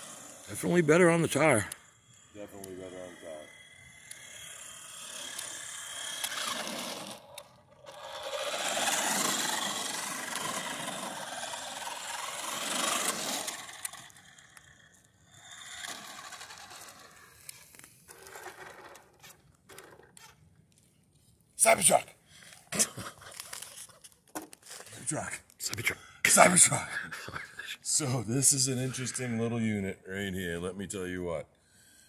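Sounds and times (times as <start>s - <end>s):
toy car motor whirring: 0.0s - 20.4s, 21.8s - 24.9s, 27.9s - 29.4s
tyres scraping on asphalt: 0.0s - 20.4s.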